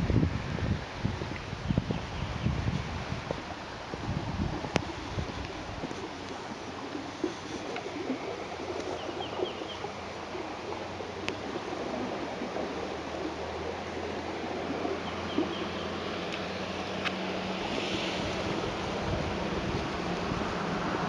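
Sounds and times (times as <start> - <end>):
floodwater rushing: 0.0 - 21.0
bird chirping: 8.9 - 9.9, 15.0 - 16.0.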